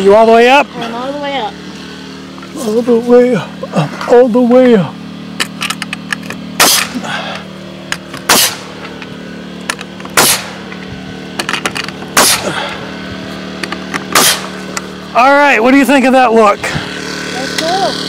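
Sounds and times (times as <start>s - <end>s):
steady low hum: 0.0s - 18.0s
nail gun firing: 6.6s - 7.0s, 8.2s - 8.7s, 9.7s - 10.6s, 11.4s - 12.5s, 13.9s - 14.5s.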